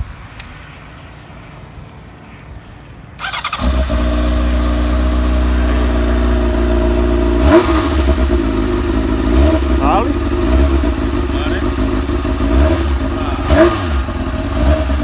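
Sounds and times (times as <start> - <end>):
motorcycle engine idling: 3.2 - 15.0.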